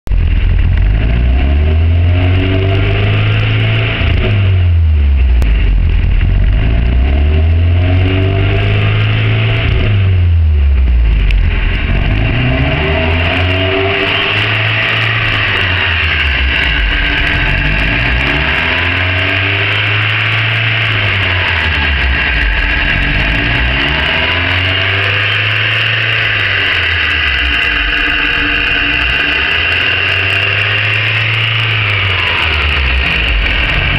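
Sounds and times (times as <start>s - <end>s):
car engine hunting idle: 13.7s - 33.9s.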